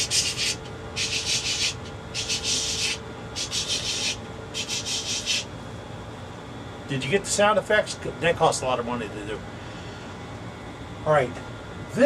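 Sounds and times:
scratchy sanding swishes: 0.0 - 5.5.

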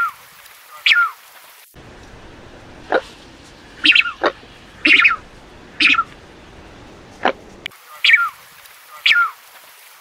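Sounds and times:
duck calling: 3.8 - 6.2, 7.2 - 9.4.

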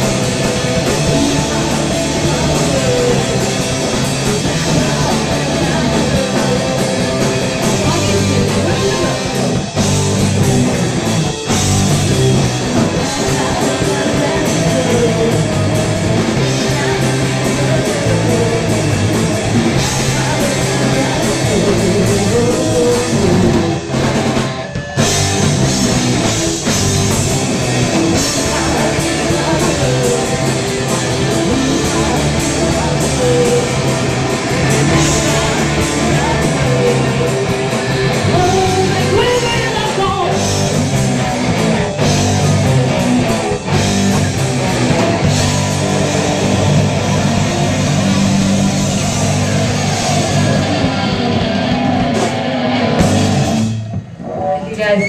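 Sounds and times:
person singing: 0.0 - 10.4, 12.3 - 24.0, 27.5 - 43.8
bass guitar: 0.0 - 55.0
drum kit: 0.0 - 55.0
electric guitar: 0.0 - 55.0.

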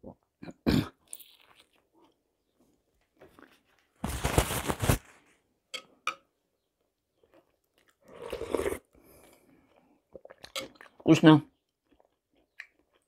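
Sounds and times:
chewing crunchy pastry: 1.0 - 2.6, 7.0 - 13.0.

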